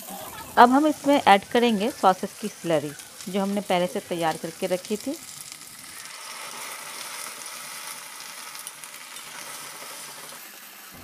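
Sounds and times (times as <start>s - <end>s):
vegetables sizzling in hot oil: 0.0s - 11.0s.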